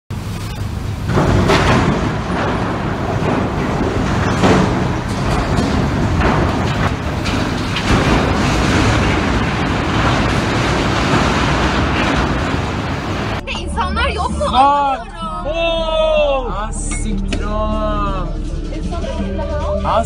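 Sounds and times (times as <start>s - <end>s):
ship crashing into crane: 0.2s - 14.1s
heavy metal impacts: 0.2s - 14.3s.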